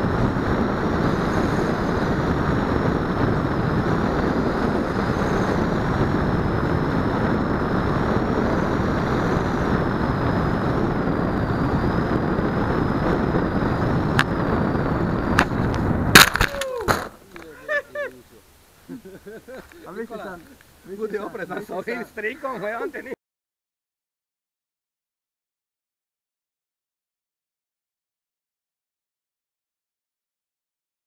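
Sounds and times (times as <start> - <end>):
high motor whine: 0.0 - 22.8
air rush and propeller noise: 0.0 - 23.2.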